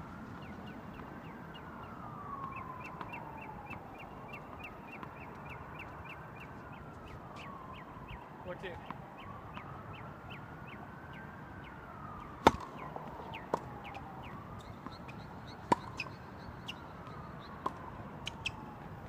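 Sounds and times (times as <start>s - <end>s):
tennis ball hit and bouncing: 12.3s - 16.2s, 17.0s - 18.6s.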